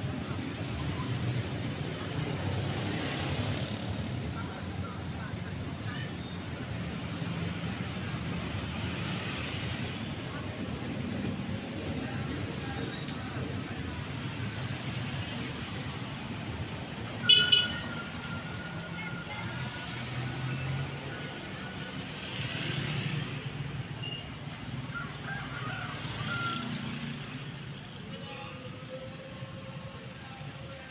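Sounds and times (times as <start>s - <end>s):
traffic rumble: 0.0s - 30.9s
short loud horn beep: 17.3s - 17.8s.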